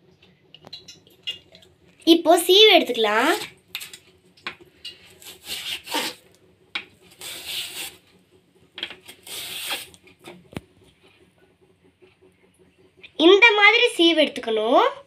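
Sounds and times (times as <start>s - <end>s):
banana scraping across slicer blade: 5.1s - 6.2s, 7.1s - 8.0s.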